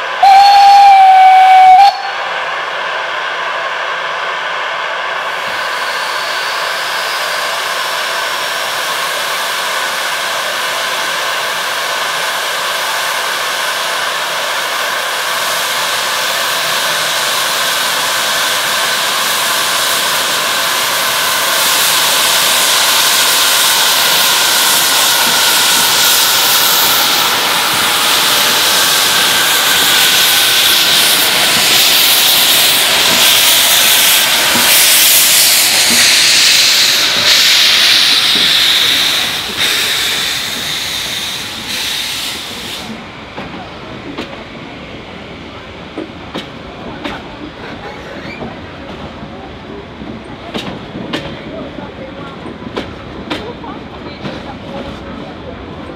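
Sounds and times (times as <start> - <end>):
steam locomotive hissing: 0.0 - 55.9
steam venting: 5.3 - 43.6.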